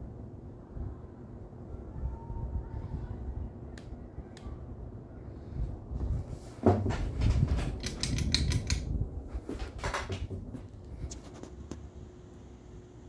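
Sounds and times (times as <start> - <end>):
ceiling fan humming: 0.0 - 13.0
clattering clicks and knocks: 6.6 - 11.2.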